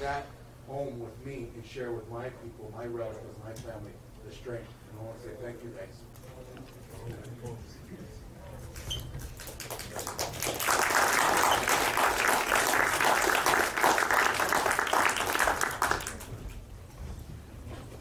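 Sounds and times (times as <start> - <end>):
audience applauding: 9.2 - 16.4.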